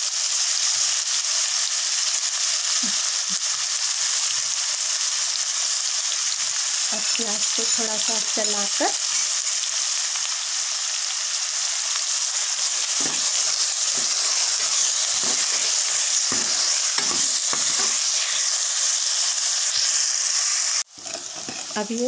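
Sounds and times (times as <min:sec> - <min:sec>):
onions sizzling in hot oil: 0:00.0 - 0:22.0
metal ladle scraping and stirring: 0:12.9 - 0:18.5.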